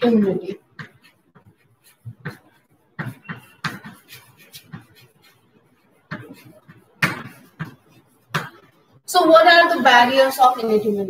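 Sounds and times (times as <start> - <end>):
chalk writing on blackboard: 0.6 - 8.3.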